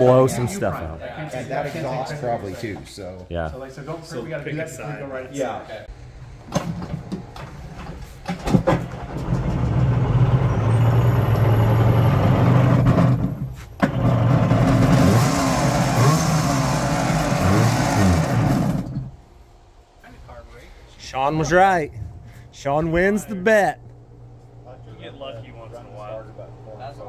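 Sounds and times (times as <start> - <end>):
two-stroke engine revving: 9.2 - 19.1.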